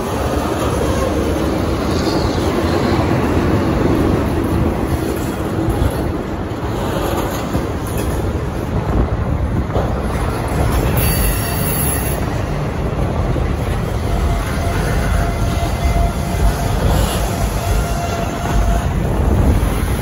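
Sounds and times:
train wheels rumbling on rails: 0.0 - 20.0
high wheel squeal: 10.8 - 12.5, 13.8 - 19.0.

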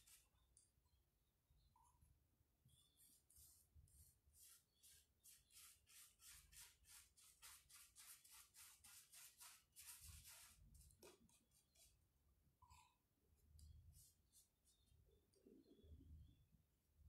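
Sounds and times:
paintbrush scrubbing on rough wood: 3.0 - 10.8.

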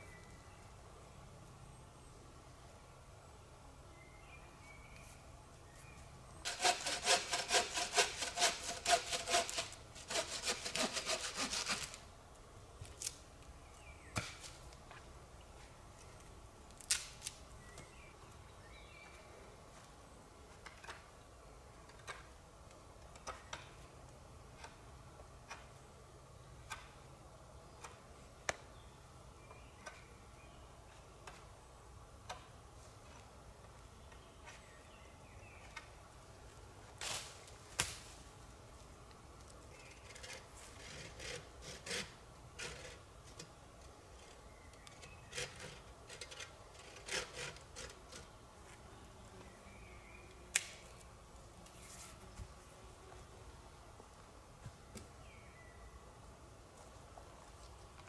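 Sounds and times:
hand saw cutting wood: 6.5 - 12.0, 40.0 - 43.0, 45.1 - 48.2.

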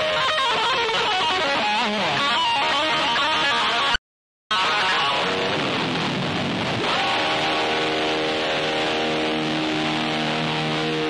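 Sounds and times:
electric guitar in rock band: 0.0 - 11.0
sustained guitar chord ringing: 4.6 - 11.0.

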